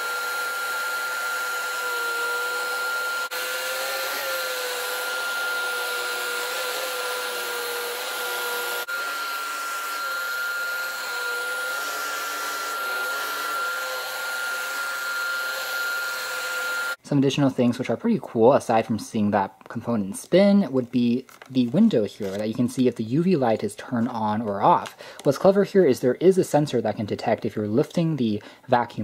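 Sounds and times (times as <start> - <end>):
vacuum cleaner humming with high whine: 0.0 - 17.0.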